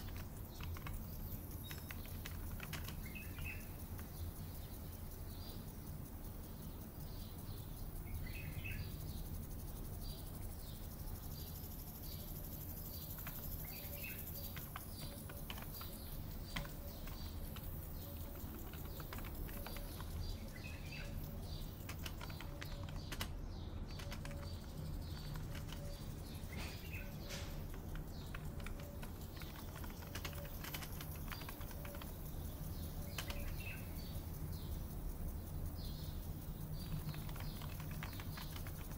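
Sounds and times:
keyboard typing: 0.0 - 5.6, 12.0 - 34.3, 36.5 - 38.9
birds chirping: 0.0 - 38.9
steady low hum: 0.0 - 38.9.

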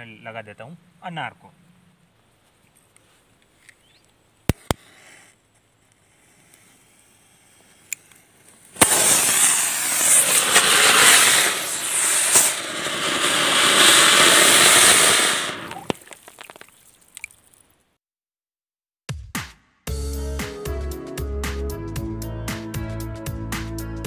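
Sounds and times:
firework spark hiss: 6.0 - 16.0.

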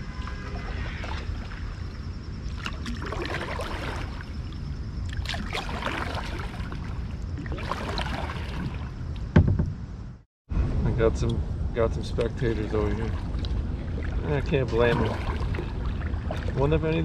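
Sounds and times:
paddle strokes splashing: 2.5 - 9.3, 12.2 - 17.0
wind rumble on microphone: 6.4 - 17.0.

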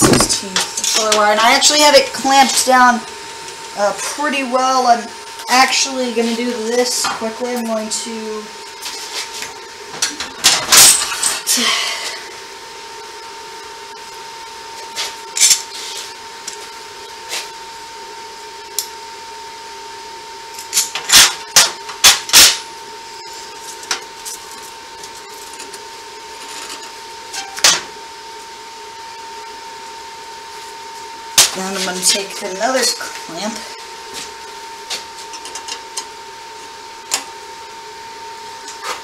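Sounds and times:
steady hum: 0.0 - 39.0.

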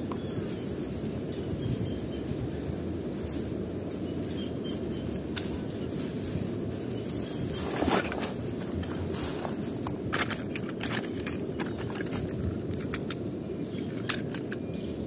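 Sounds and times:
steady low rumble: 0.0 - 15.0
metal toy cars clattering: 10.1 - 13.2, 13.9 - 14.7.

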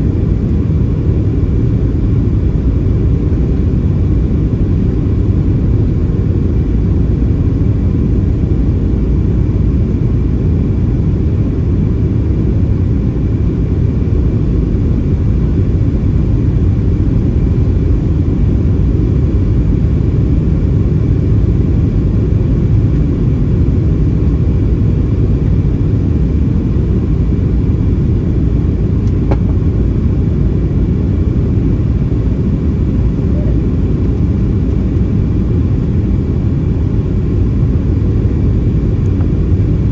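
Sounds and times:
airplane cabin rumble: 0.0 - 39.9.

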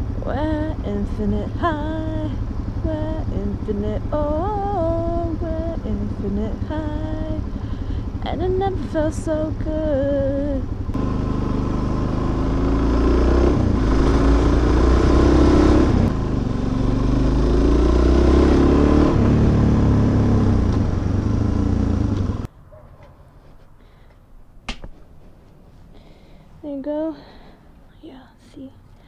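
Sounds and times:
motorcycle engine accelerating: 0.0 - 22.5.

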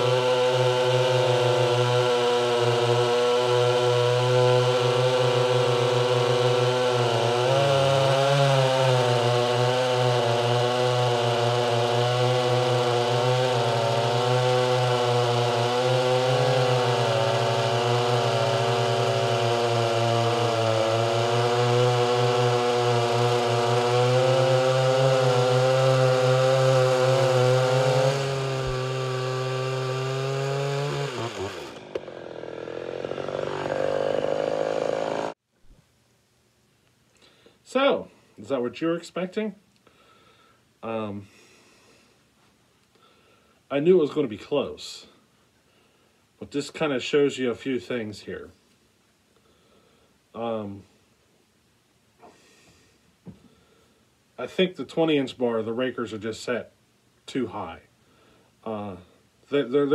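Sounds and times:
chainsaw cutting log: 0.0 - 35.4.

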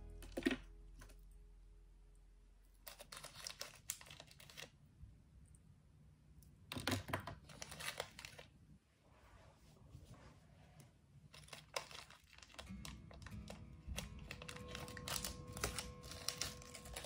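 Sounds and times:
music chord: 0.0 - 2.1, 12.6 - 17.0
plastic bag crinkling: 2.8 - 4.8, 6.7 - 8.6, 11.3 - 17.0.

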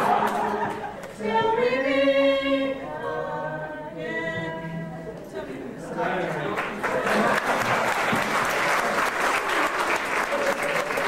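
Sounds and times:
voices singing unaccompanied: 0.0 - 6.5.

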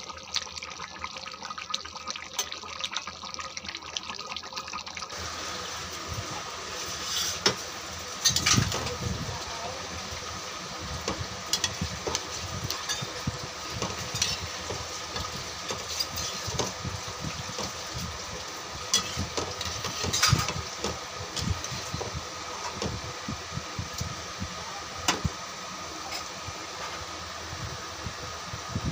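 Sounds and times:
spatula stirring curry in pan: 11.0 - 22.8.

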